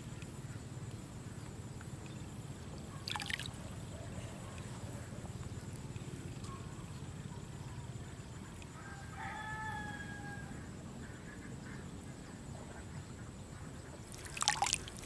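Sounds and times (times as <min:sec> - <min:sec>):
loud splashing: 0:03.1 - 0:03.5, 0:14.1 - 0:15.0
rooster crowing: 0:08.8 - 0:10.7.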